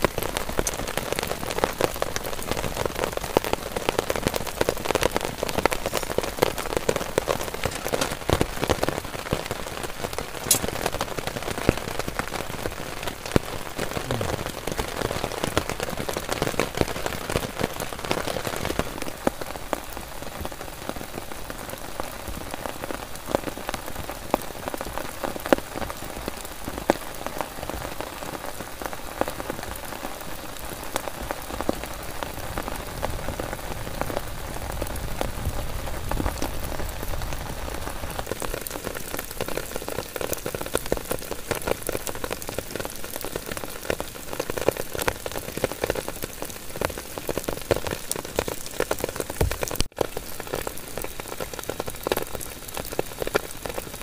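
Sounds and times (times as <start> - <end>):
sharp raindrop hits: 0.0 - 19.5, 31.1 - 54.0
heavy rain on a tent: 0.0 - 54.0.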